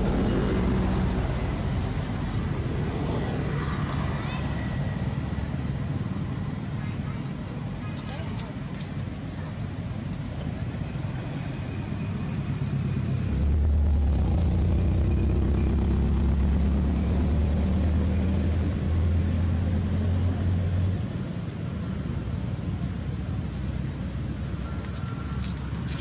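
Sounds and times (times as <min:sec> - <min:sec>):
low rumble: 0:00.0 - 0:03.0, 0:13.0 - 0:20.4.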